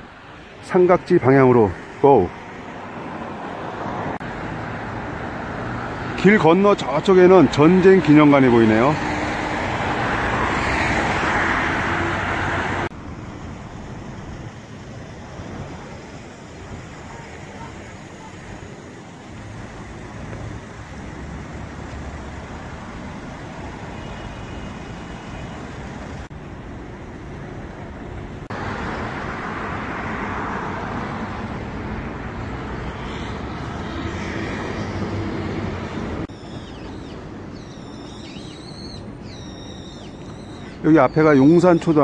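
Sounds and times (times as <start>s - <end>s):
passing cars: 0.0s - 42.0s
birds chirping: 36.3s - 42.0s.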